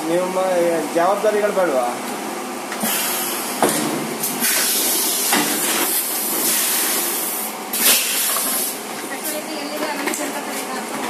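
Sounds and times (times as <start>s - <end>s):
compressed air hissing: 2.8s - 3.6s, 4.2s - 8.8s.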